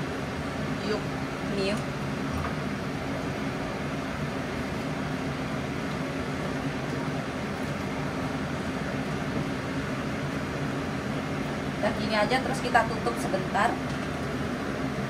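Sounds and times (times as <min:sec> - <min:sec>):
cooktop fan hum: 0:00.0 - 0:15.0.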